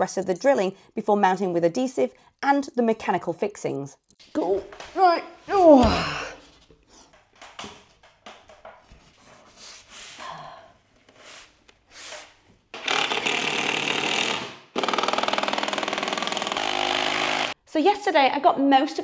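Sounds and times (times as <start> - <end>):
power drill running: 12.8 - 17.6.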